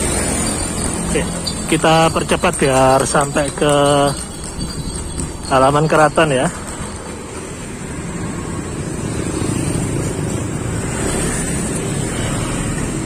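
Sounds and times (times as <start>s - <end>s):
motor scooters riding past: 0.0s - 13.0s.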